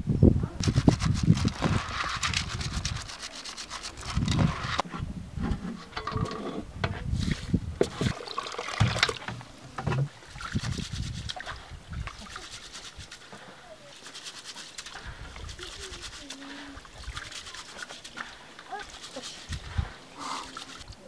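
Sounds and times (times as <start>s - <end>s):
hands scrubbing rice in water: 0.7s - 4.8s, 10.2s - 21.0s
water splashing against metal: 7.2s - 21.0s.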